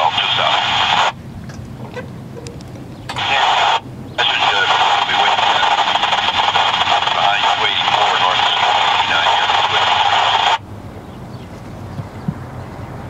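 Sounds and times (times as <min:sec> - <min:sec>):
scanner radio static hiss: 0:00.0 - 0:01.2, 0:03.1 - 0:10.7
low hum: 0:00.0 - 0:13.0.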